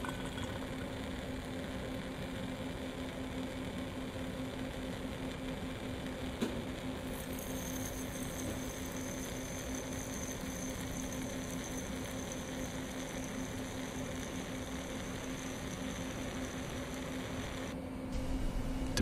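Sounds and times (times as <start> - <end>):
constant hiss: 0.0 - 17.8
low electrical hum: 0.0 - 19.0.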